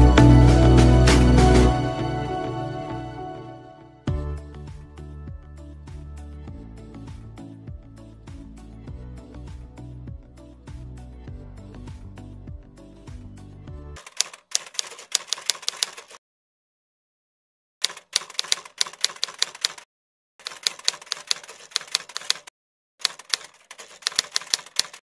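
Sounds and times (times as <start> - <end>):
background music: 0.0 - 14.0
typewriter key clacks: 14.0 - 16.2, 17.8 - 19.8, 20.4 - 25.0.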